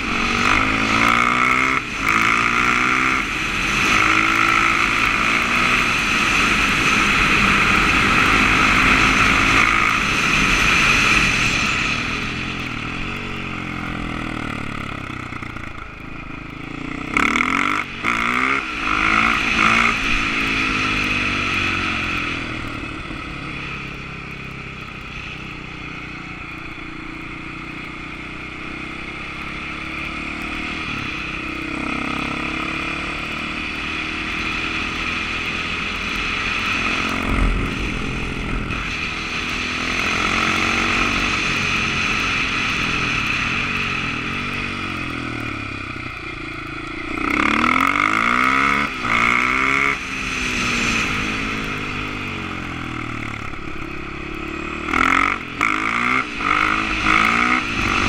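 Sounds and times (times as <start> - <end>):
motorcycle engine revving: 0.0 - 58.0
wind rushing over microphone: 36.2 - 45.9, 55.4 - 58.0.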